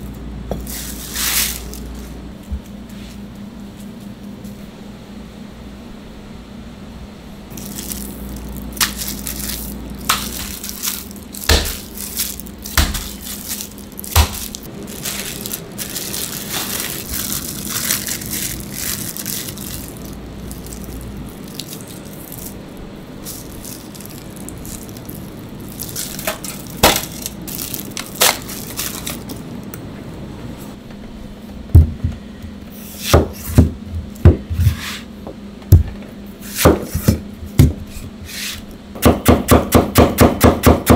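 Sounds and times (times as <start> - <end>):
steady low hum: 0.0 - 40.9
plastic wrap rustling: 0.6 - 2.2, 7.5 - 29.7
gloved hands handling meat: 7.6 - 29.5.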